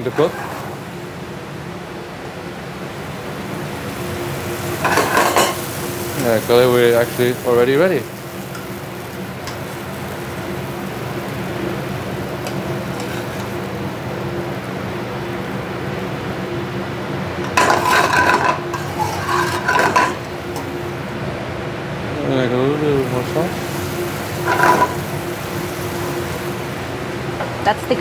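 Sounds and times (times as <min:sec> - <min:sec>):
kitchen range and hood hum: 0:00.0 - 0:28.0
metal tongs clinking: 0:24.4 - 0:25.1.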